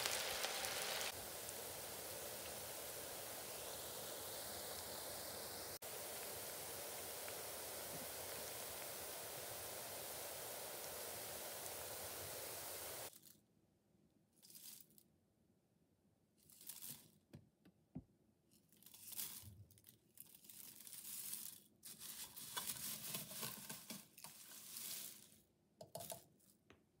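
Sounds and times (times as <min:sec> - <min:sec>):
spoon stirring crispy fried onions: 0:00.0 - 0:12.4, 0:20.5 - 0:25.4.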